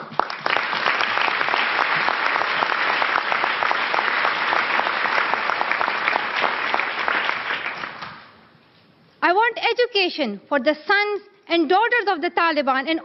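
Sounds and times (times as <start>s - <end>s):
large audience applauding: 0.0s - 8.4s.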